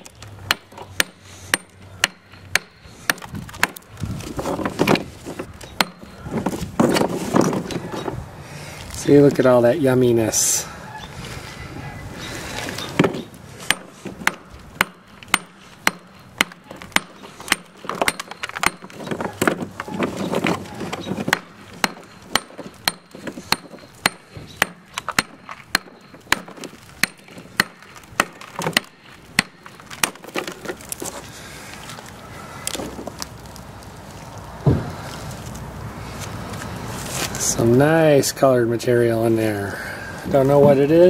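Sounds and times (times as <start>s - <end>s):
hammer striking rock: 5.8s - 6.1s, 13.7s - 19.6s, 21.3s - 30.4s.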